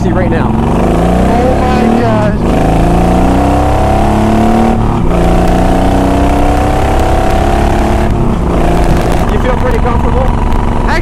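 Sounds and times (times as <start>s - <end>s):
motorcycle engine accelerating: 0.0s - 11.0s
wind noise: 4.7s - 11.0s.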